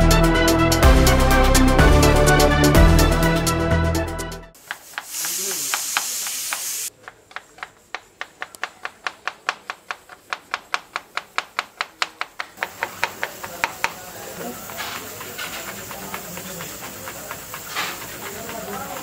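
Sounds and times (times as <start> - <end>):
knife chopping onion on board: 4.6 - 19.0
loud steady hiss: 4.6 - 19.0.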